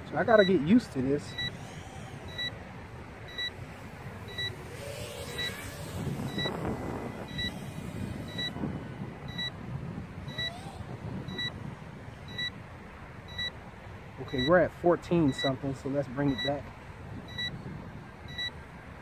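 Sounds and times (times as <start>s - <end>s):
quadcopter motors whining: 0.0s - 13.6s, 14.2s - 18.5s
wind: 0.0s - 19.0s
short electronic beeps: 0.3s - 2.6s, 3.2s - 8.6s, 9.2s - 9.6s, 10.3s - 10.7s, 11.3s - 11.6s, 12.3s - 12.6s, 13.3s - 13.6s, 14.2s - 14.6s, 15.2s - 15.6s, 16.2s - 18.6s.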